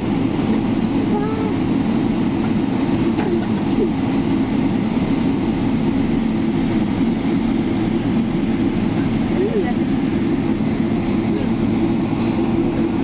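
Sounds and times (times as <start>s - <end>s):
airliner cabin rumble: 0.0s - 13.0s
jet engine noise: 0.0s - 13.0s.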